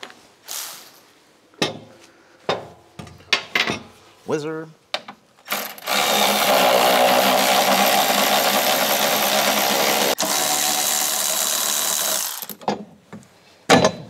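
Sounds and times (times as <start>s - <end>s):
power tool whirring: 5.5s - 12.6s.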